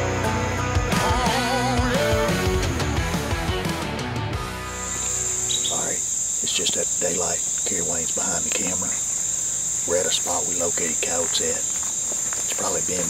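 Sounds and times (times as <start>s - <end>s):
high-pitched insect chorus: 4.5s - 13.0s.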